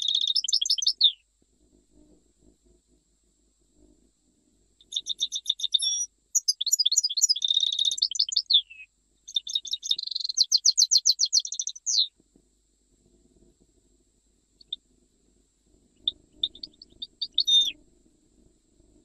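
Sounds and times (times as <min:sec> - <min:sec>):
bird twittering trills: 0:00.0 - 0:01.2, 0:04.8 - 0:12.1, 0:16.0 - 0:17.8.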